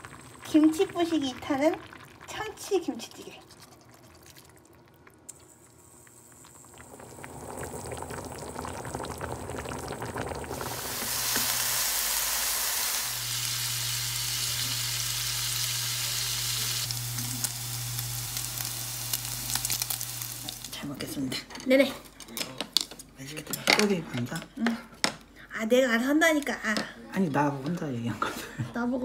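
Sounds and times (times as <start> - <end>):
stew simmering and bubbling: 0.0 - 25.4
meat sizzling in a pan: 5.5 - 20.8.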